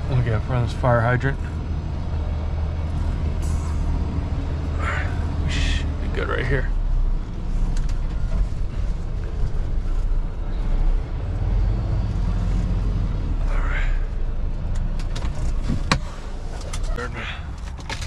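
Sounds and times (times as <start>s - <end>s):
diesel engine idling: 0.0s - 17.9s.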